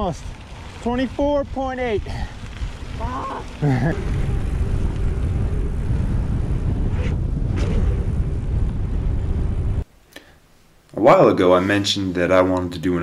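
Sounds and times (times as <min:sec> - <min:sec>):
wind buffeting microphone: 0:00.0 - 0:09.9.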